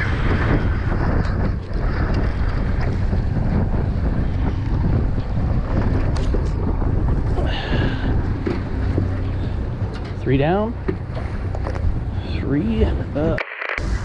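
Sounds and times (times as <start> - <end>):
water washing along boat: 0.0 - 13.4
wind buffeting microphone: 0.0 - 14.0.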